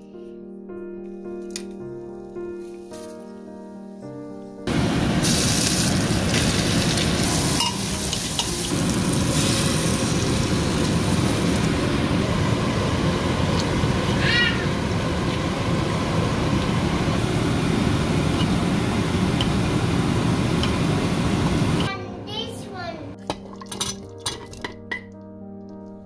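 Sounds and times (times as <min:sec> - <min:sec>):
spices sizzling in hot oil: 0:04.7 - 0:21.9
ladle stirring: 0:23.2 - 0:25.0.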